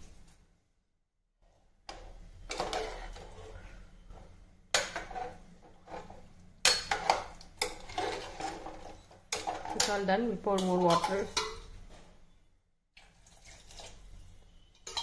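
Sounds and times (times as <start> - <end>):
metal spoon scraping a pot: 1.9 - 4.2, 4.8 - 11.8, 13.2 - 15.0
spoon clinking on pot rim: 14.8 - 15.0.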